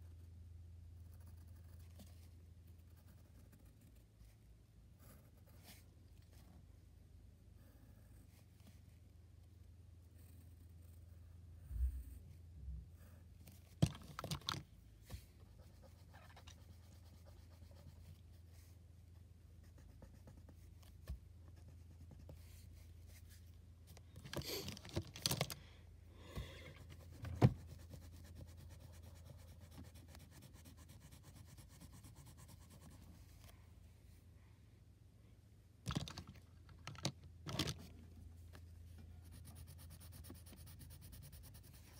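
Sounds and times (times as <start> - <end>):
pencil scratching on paper: 26.8 - 33.3, 39.2 - 41.9.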